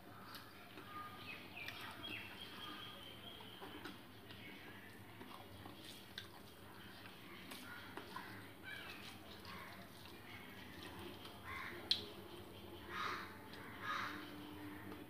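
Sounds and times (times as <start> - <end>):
chewing: 0.2 - 13.8
fingers mixing food on steel plate: 3.4 - 15.0.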